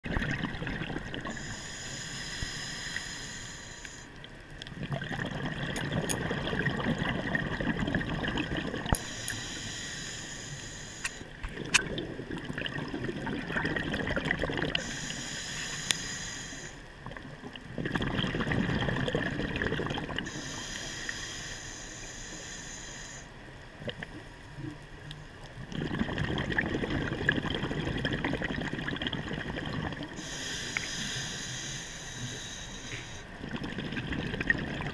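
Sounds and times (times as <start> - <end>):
exhaled bubbles rushing: 0.0 - 1.4, 4.8 - 9.0, 11.5 - 14.8, 17.1 - 20.3, 25.6 - 30.2, 33.4 - 34.9
hissing regulator inhale: 1.3 - 4.2, 9.0 - 11.3, 14.8 - 16.9, 20.2 - 23.4, 30.1 - 33.3.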